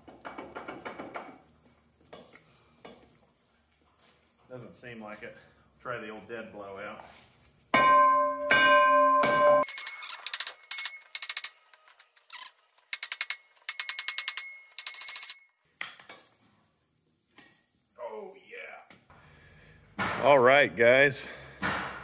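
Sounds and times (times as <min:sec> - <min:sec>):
hammer ringing on steel: 0:07.8 - 0:11.6.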